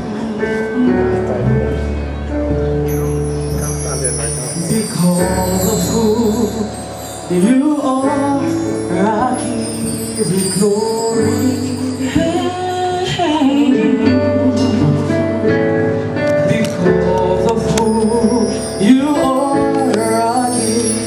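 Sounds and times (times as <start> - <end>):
bass line: 0.0 - 15.8
keyboard: 0.0 - 21.0.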